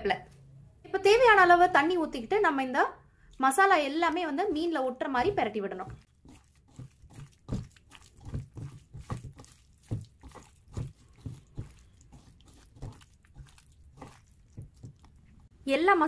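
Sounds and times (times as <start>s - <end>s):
fish squelching in batter: 3.2s - 15.5s.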